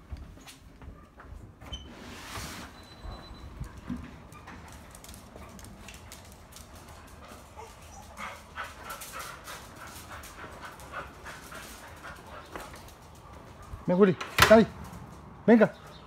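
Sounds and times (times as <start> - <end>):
dog whimpering and panting: 7.3 - 12.8.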